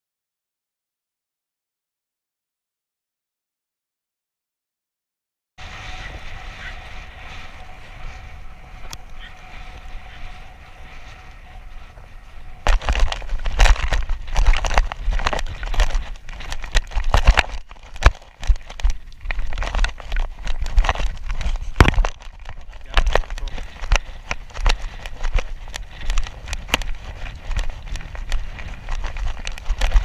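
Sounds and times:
wind hiss: 5.6 - 17.7
wind buffeting microphone: 5.6 - 30.0.

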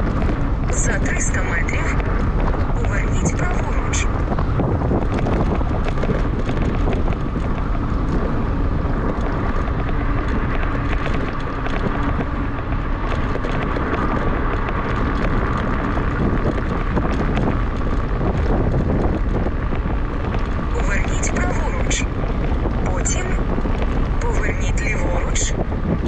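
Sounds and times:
faint steady whine: 0.0 - 26.0
road rumble: 0.0 - 26.0
small clicks and rattles: 0.0 - 26.0
wind rushing over microphone: 0.0 - 26.0.

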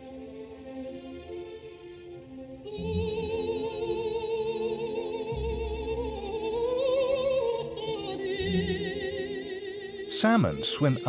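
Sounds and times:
singing voice with vibrato: 2.8 - 11.0.

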